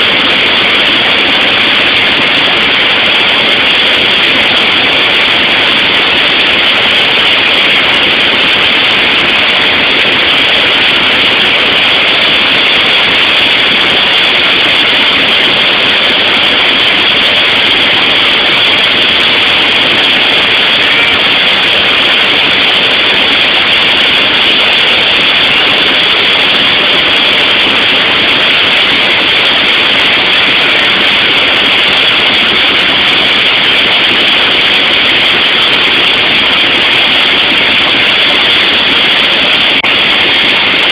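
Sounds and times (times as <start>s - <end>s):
airplane engine drone: 0.0s - 40.9s.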